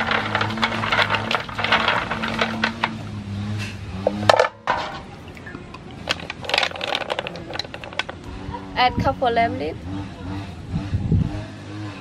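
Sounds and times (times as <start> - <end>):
clam shells clattering: 0.0 - 3.1, 4.1 - 8.2.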